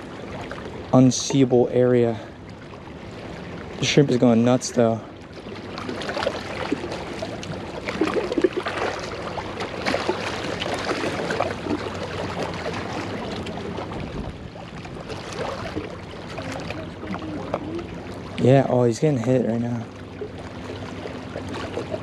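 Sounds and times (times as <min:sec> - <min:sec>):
waves splashing against rocks: 0:05.5 - 0:19.7.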